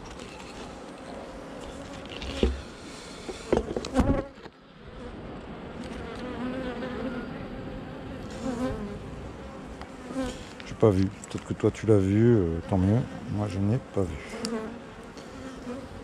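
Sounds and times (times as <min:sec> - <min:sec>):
bees buzzing: 0:05.9 - 0:16.0.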